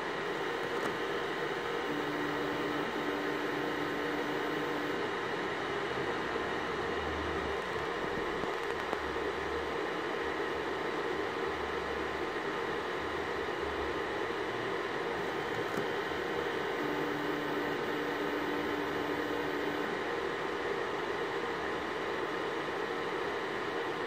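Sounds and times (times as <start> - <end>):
motor hum: 0.0 - 5.2, 15.2 - 20.1
cooling fan whirring: 0.0 - 24.0.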